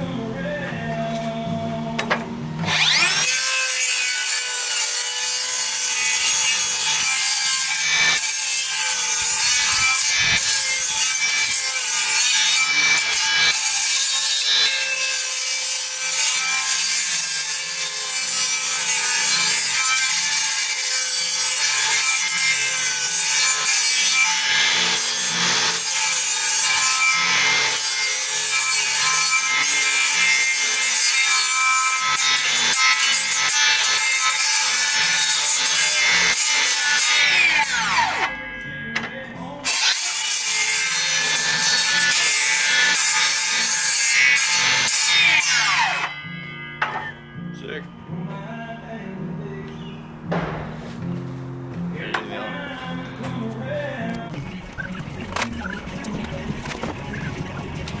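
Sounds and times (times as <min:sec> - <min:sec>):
circular saw cutting timber: 0:02.0 - 0:38.4, 0:39.6 - 0:47.1.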